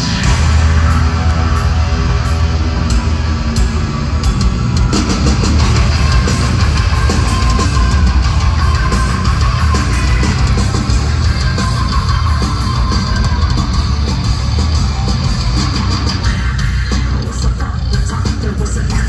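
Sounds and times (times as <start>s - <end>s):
live heavy metal band: 0.0s - 19.0s.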